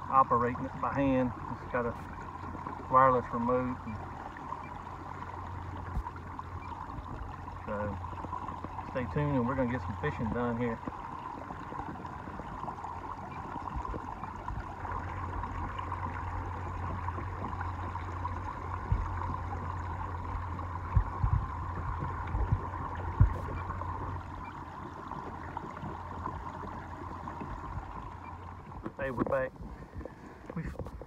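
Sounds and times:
electric trolling motor whine: 0:00.0 - 0:30.6
water rushing along hull: 0:00.0 - 0:31.0
low thumps: 0:18.7 - 0:24.5.

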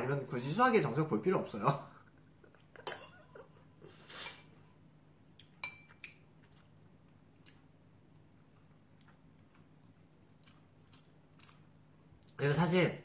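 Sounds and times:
soft clicks and mouth sounds: 0:05.3 - 0:12.4
metal spoon clinking bowl: 0:05.6 - 0:06.0.

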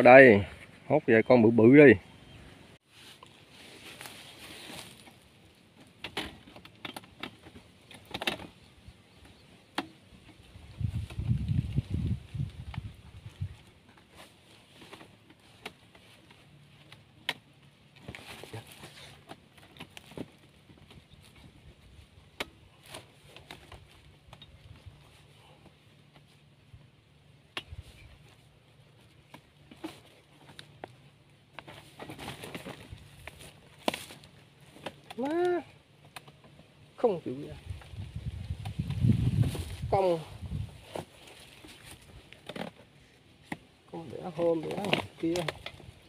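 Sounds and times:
faint rustling: 0:01.8 - 0:09.4
handling clicks and rustles: 0:03.0 - 0:46.0
sharp clicks and light knocks: 0:05.0 - 0:11.2, 0:36.0 - 0:36.7, 0:44.4 - 0:46.0.

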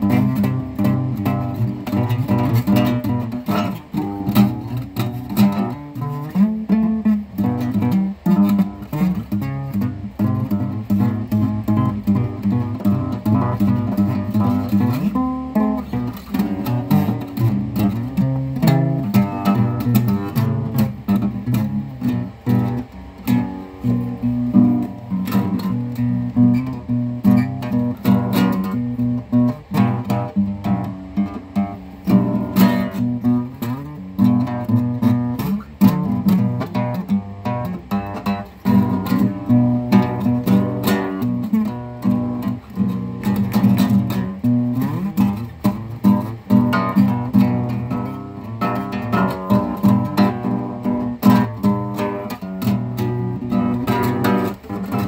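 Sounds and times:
acoustic guitar plucked and strummed: 0:00.0 - 0:55.0.

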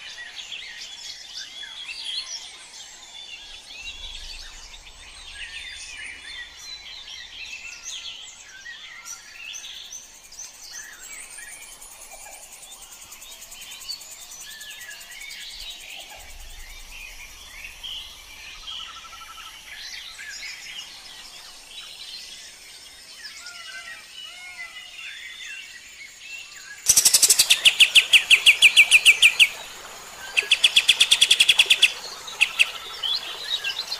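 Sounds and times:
steady background hiss: 0:02.7 - 0:33.9
songbird chirps whistles and trills: 0:26.8 - 0:33.9.

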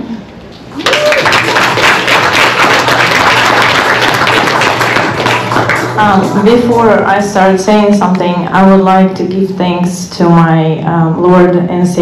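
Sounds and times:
audience applauding: 0:00.7 - 0:06.5.

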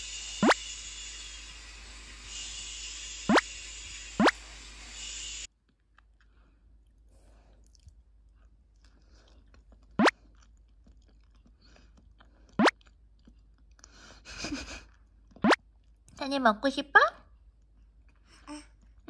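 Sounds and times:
upward sweeping chirps: 0:00.0 - 0:01.5, 0:02.2 - 0:05.5
soft chewing: 0:05.5 - 0:16.2, 0:17.3 - 0:19.0.

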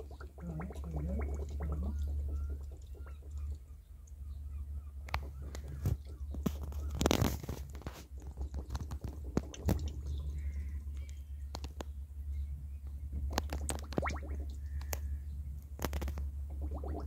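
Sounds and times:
glugging gush: 0:00.0 - 0:04.2, 0:05.0 - 0:11.0, 0:13.2 - 0:15.0, 0:15.8 - 0:17.0
air bubbles gurgling in coolant: 0:00.0 - 0:04.3, 0:04.9 - 0:11.8, 0:13.1 - 0:15.1, 0:15.7 - 0:17.0
steady low hum: 0:00.0 - 0:17.0.

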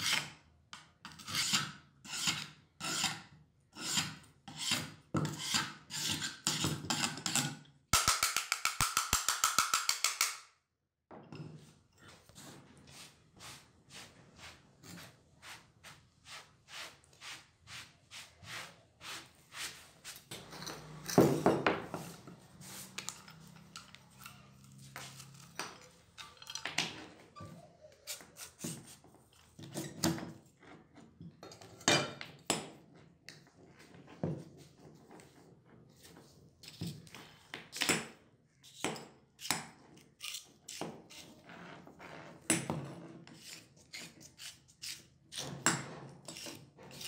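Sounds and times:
metal scraping clatter on concrete: 0:20.3 - 0:27.5.

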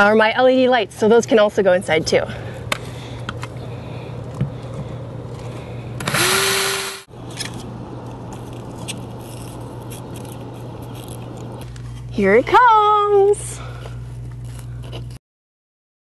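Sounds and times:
low steady hum: 0:00.0 - 0:15.2
power drill running: 0:06.0 - 0:07.1.

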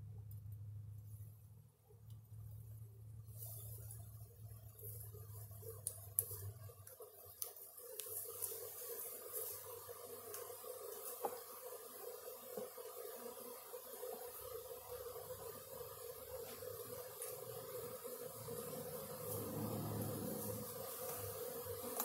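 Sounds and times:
bee swarm buzzing: 0:06.6 - 0:22.0
low hum: 0:18.4 - 0:21.0.

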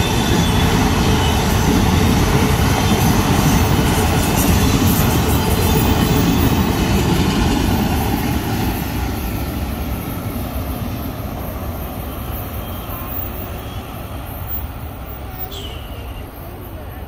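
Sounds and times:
freight train rolling on rails: 0:00.0 - 0:17.0.

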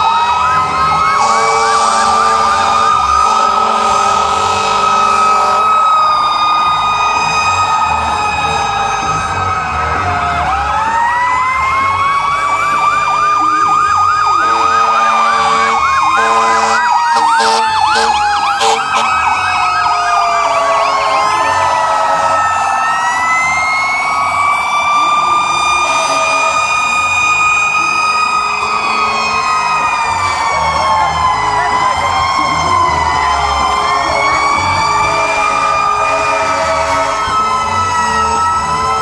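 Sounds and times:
fire engine sirens wailing: 0:00.0 - 0:39.0
siren fast yelp: 0:00.0 - 0:39.0
truck air horn blasts: 0:01.2 - 0:05.7, 0:14.4 - 0:19.2.

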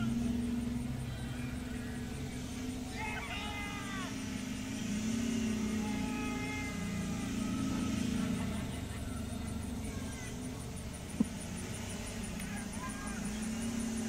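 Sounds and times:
car engine driving past: 0:00.0 - 0:14.0.

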